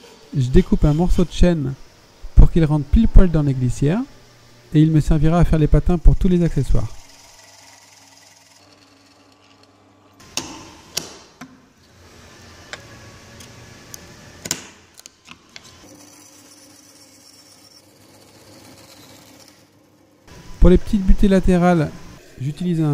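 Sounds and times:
pillar drill boring wood: 0.0s - 10.4s, 15.8s - 22.9s
bandsaw running: 0.0s - 10.9s, 15.6s - 22.9s.

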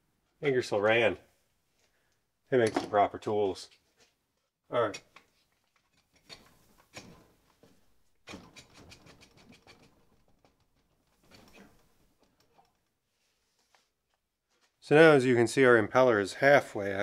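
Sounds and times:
faint clicks and rustles of hands: 5.1s - 7.9s, 8.5s - 14.8s.

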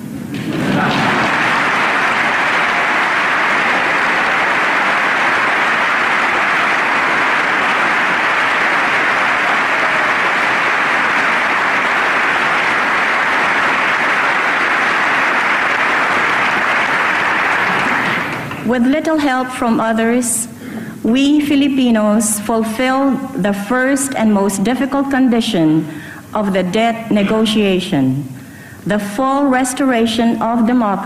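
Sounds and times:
large audience applauding: 0.4s - 18.7s.

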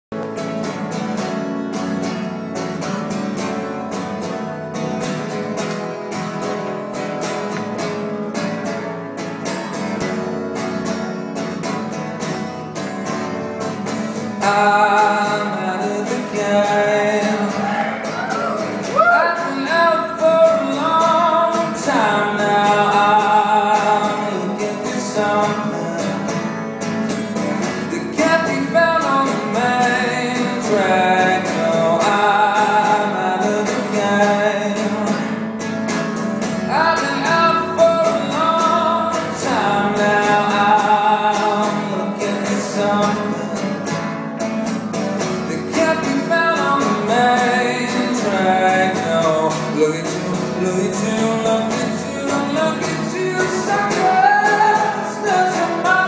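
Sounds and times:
acoustic guitar strumming: 0.1s - 56.0s
man singing: 14.1s - 35.6s, 36.5s - 44.2s, 45.2s - 56.0s.

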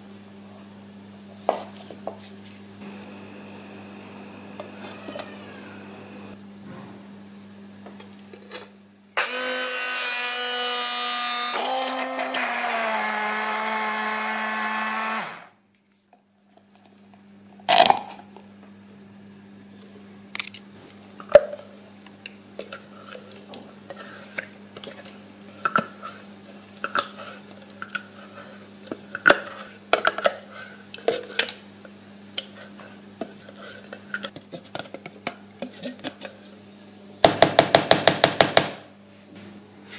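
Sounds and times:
hand blender running: 2.8s - 6.4s, 9.2s - 15.6s.

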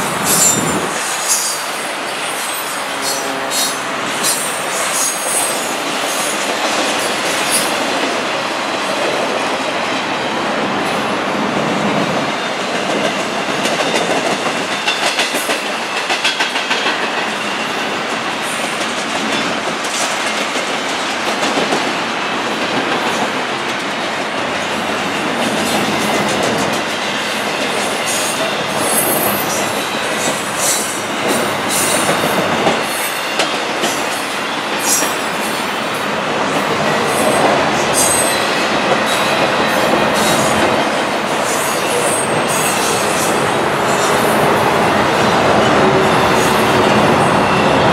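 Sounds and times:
high-pitched flange squeals: 0.0s - 6.3s
train wheels rumbling on rail: 0.0s - 47.9s.

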